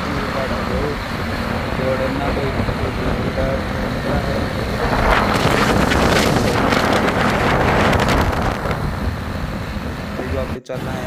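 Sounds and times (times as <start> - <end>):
motorcycle engine: 0.0 - 10.4
wind buffeting microphone: 0.0 - 11.0.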